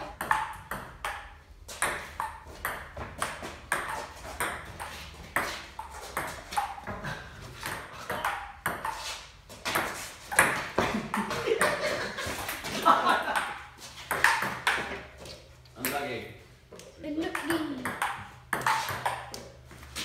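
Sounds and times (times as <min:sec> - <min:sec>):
table tennis ball hits: 0:00.0 - 0:07.0, 0:07.6 - 0:09.1, 0:09.7 - 0:12.6, 0:13.2 - 0:15.1, 0:17.3 - 0:19.6.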